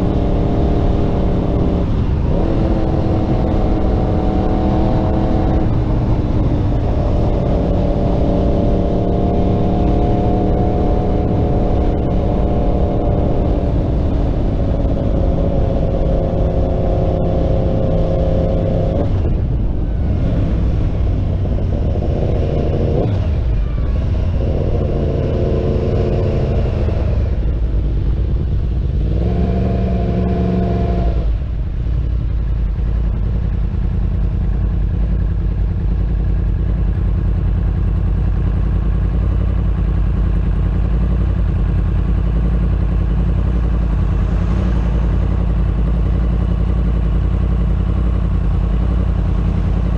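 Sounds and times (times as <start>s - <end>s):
motorcycle engine accelerating: 0.0s - 49.9s
motorcycle engine idling: 31.4s - 49.9s.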